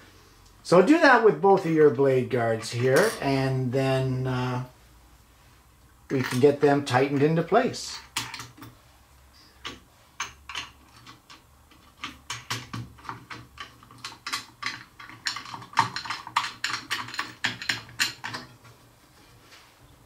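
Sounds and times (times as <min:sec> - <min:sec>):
hardware clicking and tapping: 0:08.0 - 0:08.8, 0:09.6 - 0:18.6.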